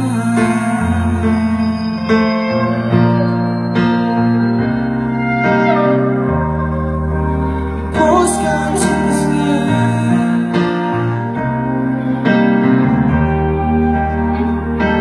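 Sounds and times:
live band playing slow song: 0.0 - 15.0.

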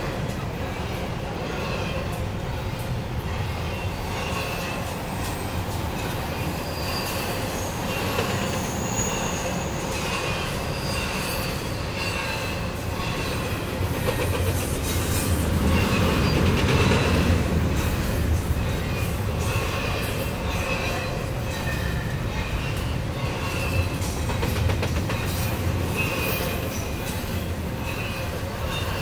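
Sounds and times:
train wheels rumbling on rail: 0.0 - 29.0
high-pitched wheel squeals: 6.0 - 13.6, 18.6 - 24.1, 25.1 - 29.0.

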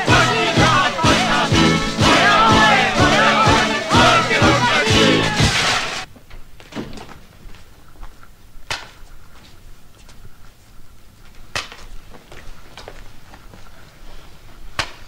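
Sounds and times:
music: 0.0 - 6.1.

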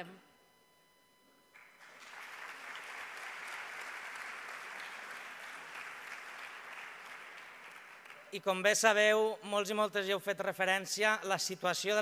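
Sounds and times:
audience applauding: 1.6 - 8.5.

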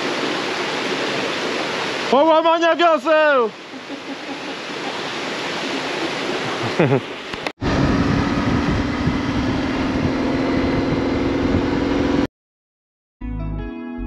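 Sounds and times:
motorcycle engine running: 7.6 - 12.3.

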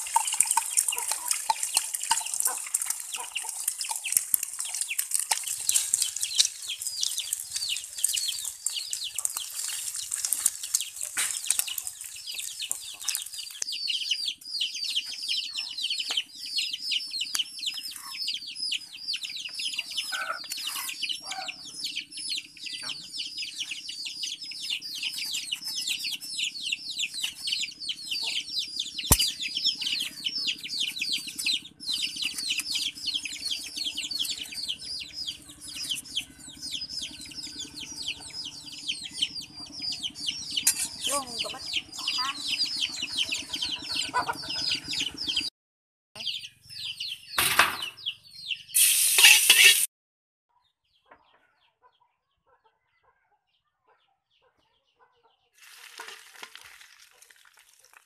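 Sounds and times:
egg frying in oil: 0.0 - 13.7, 55.6 - 58.0
chicks cheeping: 0.0 - 45.5, 46.2 - 49.9, 50.6 - 55.6.

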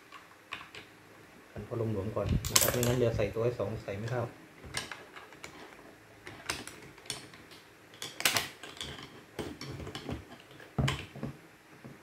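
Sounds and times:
small metallic clicks and knocks: 2.2 - 3.2.

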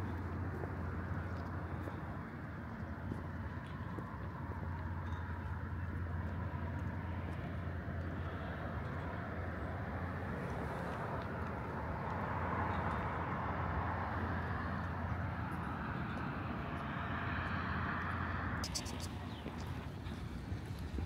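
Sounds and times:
rushing vehicle noise: 0.0 - 21.0.

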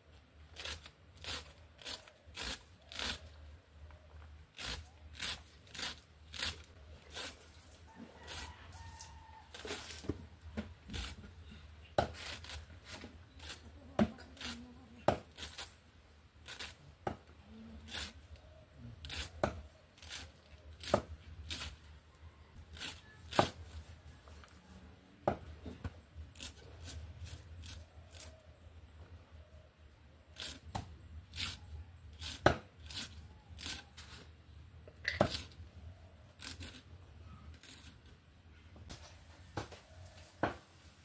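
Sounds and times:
cabbage being cut on blade: 0.6 - 3.4, 4.5 - 7.5, 10.9 - 11.2, 12.1 - 12.7, 13.3 - 15.8, 16.4 - 16.8, 17.8 - 18.2, 19.0 - 21.8, 30.4 - 34.0, 36.4 - 36.9, 37.6 - 38.1.

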